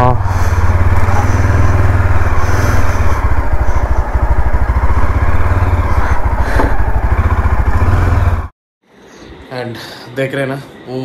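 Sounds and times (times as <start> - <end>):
motorcycle engine running: 0.0 - 8.5.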